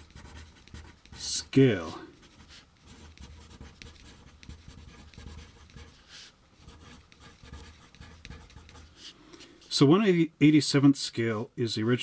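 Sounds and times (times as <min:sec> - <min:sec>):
pencil scratching on paper: 0:00.0 - 0:09.2.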